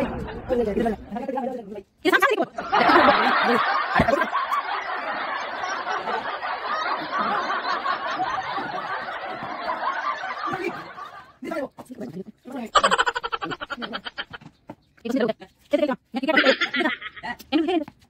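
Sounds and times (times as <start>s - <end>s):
crowd laughing: 0.0s - 1.4s, 2.6s - 11.4s, 12.7s - 14.5s, 16.3s - 17.3s.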